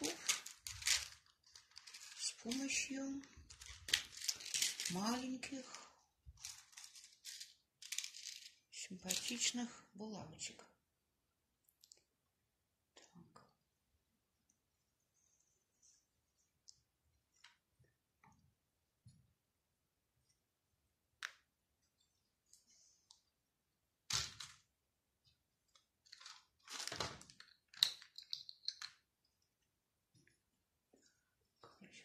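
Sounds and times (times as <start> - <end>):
soft rustling: 0.0 - 9.3.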